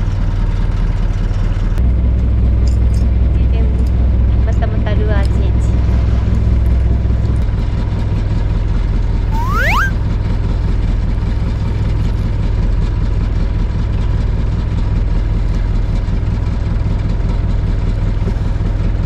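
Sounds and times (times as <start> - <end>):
rising whistle sound effect: 9.4 - 10.0.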